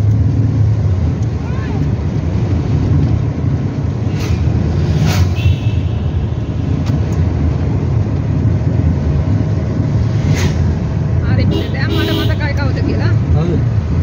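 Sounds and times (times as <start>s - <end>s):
car engine and tyres rumbling: 0.0s - 14.0s.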